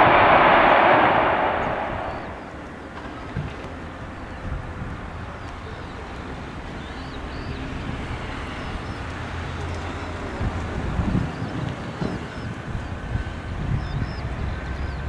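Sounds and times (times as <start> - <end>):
distant jet engine rumble: 0.0 - 15.0
small birds chirping: 3.7 - 15.0.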